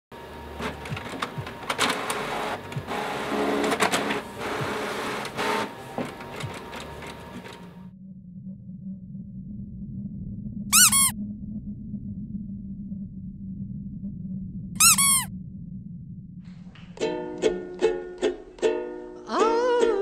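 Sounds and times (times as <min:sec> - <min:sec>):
printer motor whirring: 0:00.3 - 0:07.8
paper feed clicks: 0:00.6 - 0:07.7
low hum: 0:07.4 - 0:17.1.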